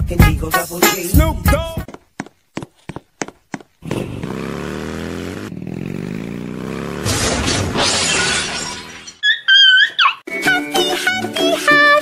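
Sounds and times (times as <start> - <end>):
motorcycle engine revving: 3.8 - 7.9.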